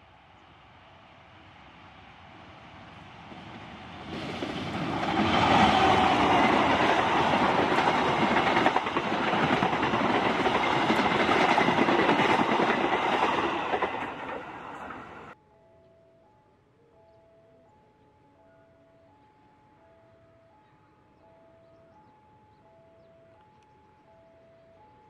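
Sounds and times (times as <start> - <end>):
passenger train passing: 0.0 - 15.4.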